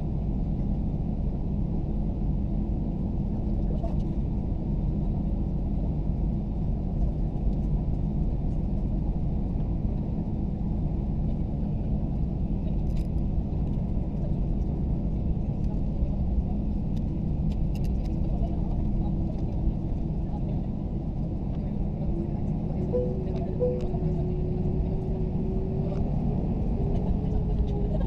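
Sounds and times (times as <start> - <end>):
airliner cabin low rumble: 0.0 - 28.0.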